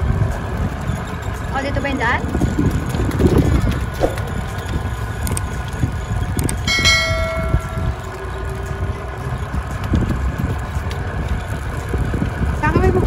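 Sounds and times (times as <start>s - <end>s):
golf cart rolling over gravel: 0.0s - 6.4s
bell chime ringing: 6.7s - 8.4s.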